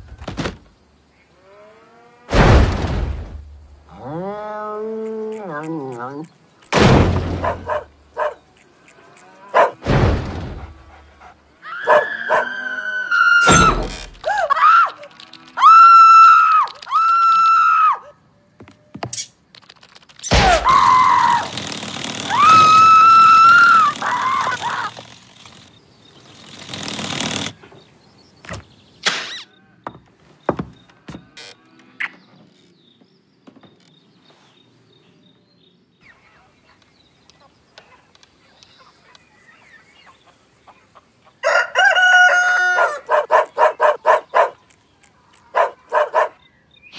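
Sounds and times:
heavy cartoon thumps: 2.3s - 3.6s, 6.7s - 7.9s, 9.8s - 11.0s, 20.3s - 22.9s
high squeaky cries: 11.6s - 18.1s, 20.2s - 21.5s, 22.2s - 25.1s.

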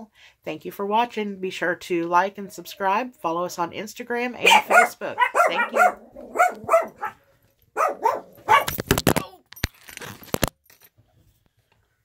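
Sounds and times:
dog barking: 4.4s - 7.2s, 7.8s - 8.8s.

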